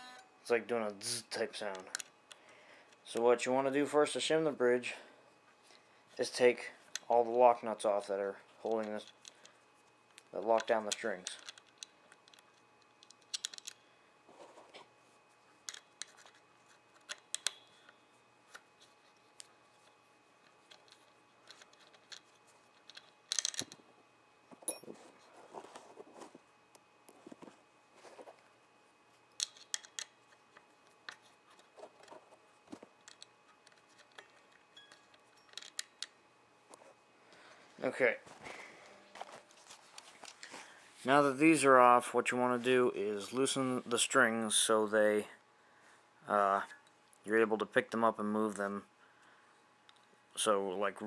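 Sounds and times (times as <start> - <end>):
small metallic clicks and scrapes: 8.6 - 13.8, 15.6 - 23.8, 29.3 - 36.8.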